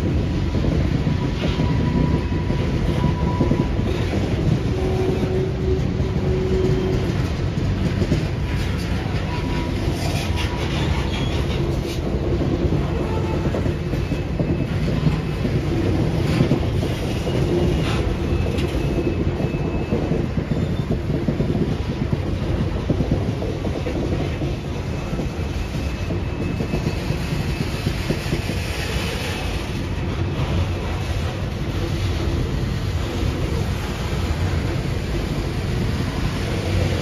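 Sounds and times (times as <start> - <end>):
wheels clicking over rail joints: 0.0 - 20.2
railroad cars rumbling past: 0.0 - 37.0
high wheel squeal: 1.0 - 7.3, 8.6 - 12.1, 12.7 - 21.2, 24.3 - 29.8.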